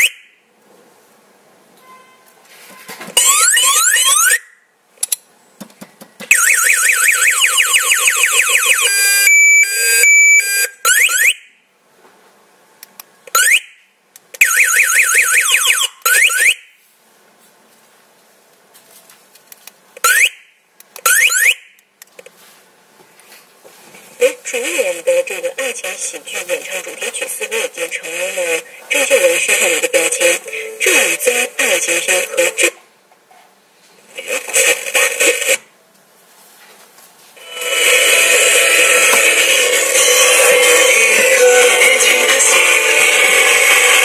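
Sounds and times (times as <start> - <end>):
motorcycle alarm siren tones: 0.0 - 0.4, 3.2 - 4.6, 6.3 - 11.6, 13.3 - 13.8, 14.4 - 16.8, 20.0 - 20.5, 21.1 - 21.8.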